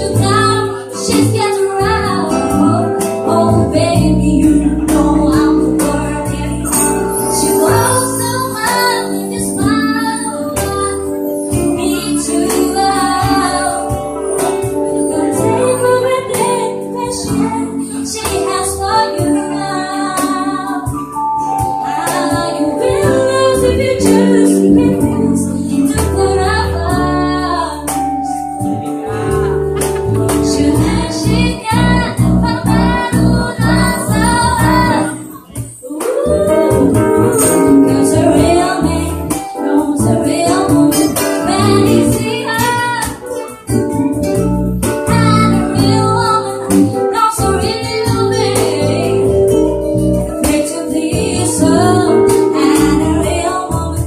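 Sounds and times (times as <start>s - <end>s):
woman singing ballad: 0.0s - 44.1s, 45.0s - 54.0s
acoustic guitar: 0.0s - 54.0s
electric bass guitar: 0.0s - 54.0s.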